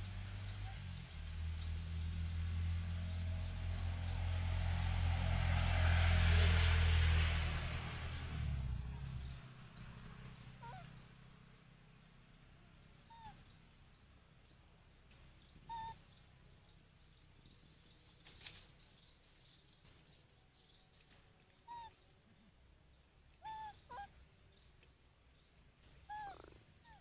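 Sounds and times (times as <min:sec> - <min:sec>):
small animal high calls: 0:10.6 - 0:10.9, 0:13.1 - 0:13.4, 0:15.7 - 0:16.0, 0:23.4 - 0:24.1, 0:26.1 - 0:27.0.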